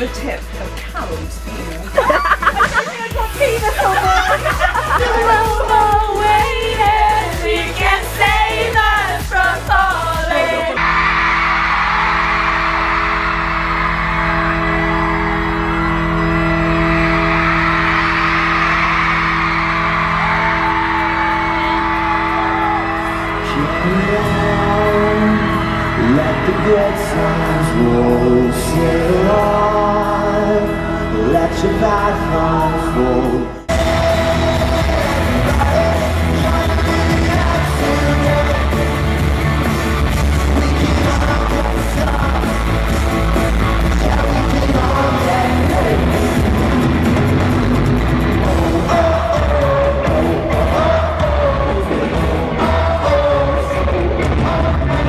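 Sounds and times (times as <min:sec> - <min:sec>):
drums: 0:00.0 - 0:11.2, 0:18.6 - 0:55.0
bass guitar: 0:00.0 - 0:55.0
piano: 0:00.0 - 0:55.0
person singing: 0:02.8 - 0:10.8, 0:22.9 - 0:39.2, 0:40.2 - 0:46.8, 0:48.4 - 0:55.0
electric guitars: 0:10.4 - 0:55.0.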